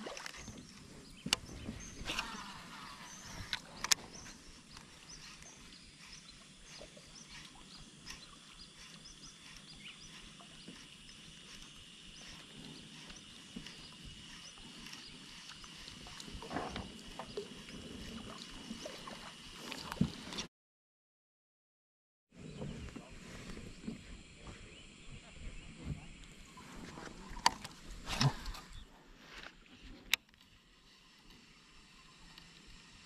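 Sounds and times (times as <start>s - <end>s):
water lapping against kayak hull: 0.0s - 20.5s, 25.7s - 30.0s
fishing reel ticks and taps: 8.0s - 12.4s, 13.0s - 16.4s.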